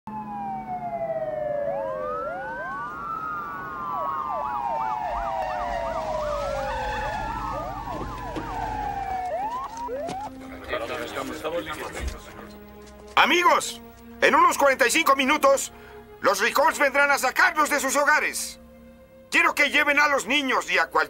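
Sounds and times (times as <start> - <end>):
police sirens wailing: 0.1 - 14.1.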